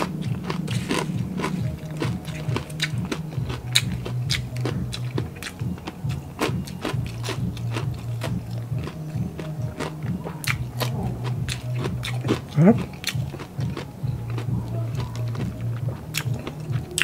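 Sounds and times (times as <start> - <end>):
crunchy chewing: 0.0 - 17.0
person humming: 7.1 - 17.0.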